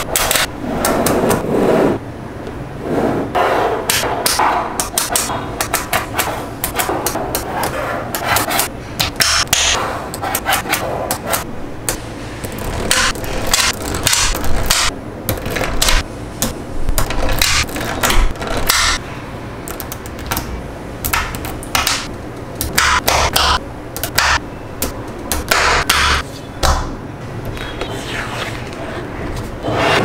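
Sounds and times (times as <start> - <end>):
magnetic balls clicking together: 3.9 - 7.5, 11.9 - 19.0, 19.6 - 25.9.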